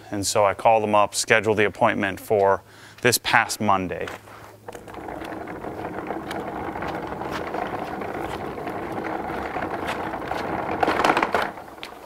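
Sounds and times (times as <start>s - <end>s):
steady mechanical running: 4.7s - 12.0s.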